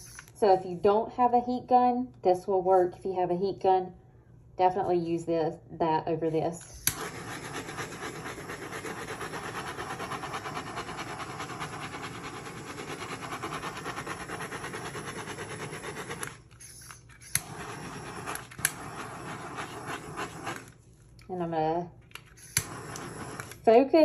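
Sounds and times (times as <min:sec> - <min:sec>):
butane torch flame hissing: 0:06.6 - 0:20.8, 0:22.3 - 0:24.0.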